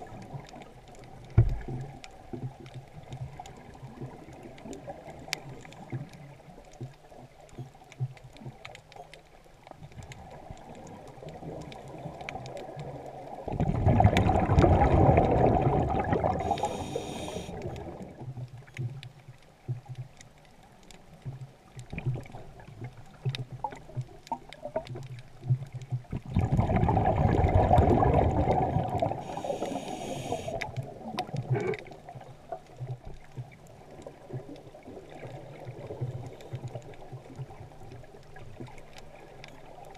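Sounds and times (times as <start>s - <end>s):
faint underwater ticking and crackling: 0.0s - 39.9s
gurgling exhaled bubbles: 10.2s - 18.3s, 25.9s - 33.0s.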